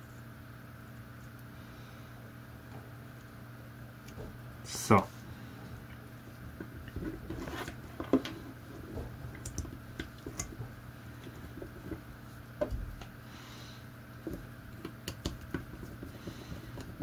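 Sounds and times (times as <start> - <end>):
cable rustling: 5.5 - 13.2, 14.2 - 17.0.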